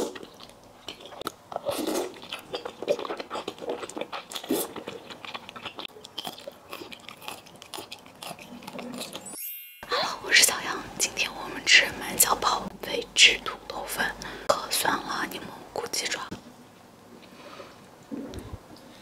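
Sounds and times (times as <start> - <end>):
slurping and wet chewing: 0.0 - 9.4.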